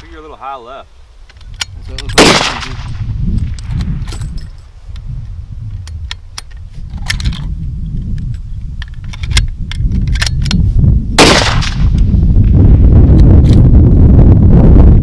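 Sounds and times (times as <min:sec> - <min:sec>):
wind rumble on microphone: 0:00.0 - 0:15.0
rifle shot: 0:02.1 - 0:03.0, 0:11.2 - 0:12.1.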